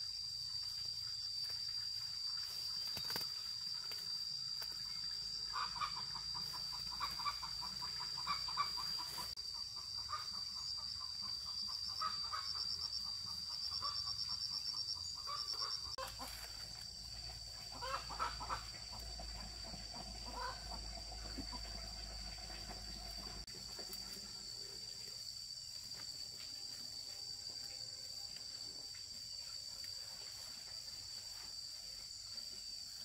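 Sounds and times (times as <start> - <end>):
fast insect trills: 0.0 - 33.0
insects droning: 0.0 - 33.0
chickens clucking: 5.5 - 10.4, 17.6 - 24.1.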